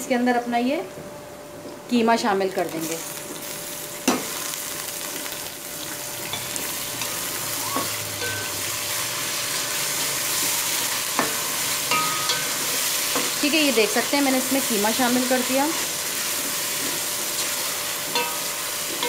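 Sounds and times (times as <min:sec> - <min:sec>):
meat sizzling in a pan: 0:02.6 - 0:19.0
spatula stirring in a pan: 0:06.3 - 0:19.0.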